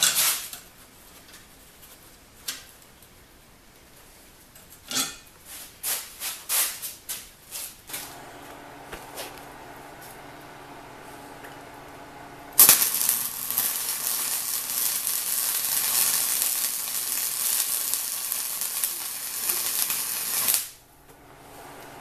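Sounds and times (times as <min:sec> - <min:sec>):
welding arc hissing and crackling: 0:07.9 - 0:22.0.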